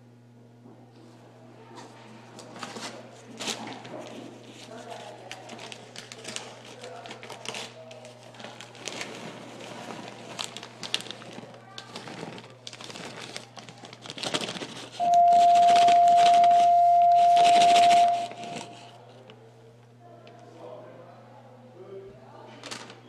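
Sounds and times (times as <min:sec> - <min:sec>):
plastic bag crinkling: 0:04.6 - 0:18.9
loud steady beep: 0:15.0 - 0:18.8.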